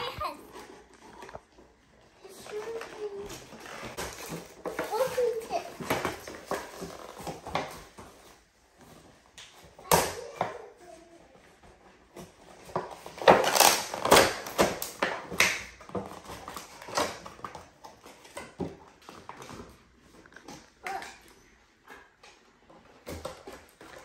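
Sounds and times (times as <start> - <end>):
plastic and cardboard crinkling: 0.0 - 24.0.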